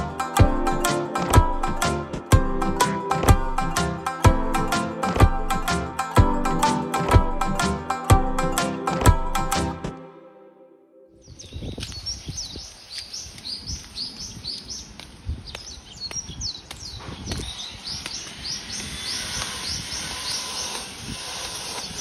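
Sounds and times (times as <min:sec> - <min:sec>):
background music: 0:00.0 - 0:11.2
birds chirping: 0:11.1 - 0:21.0.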